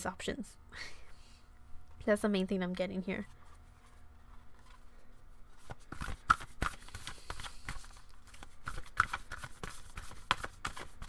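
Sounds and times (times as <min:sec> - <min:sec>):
cards being shuffled: 0:05.5 - 0:11.0.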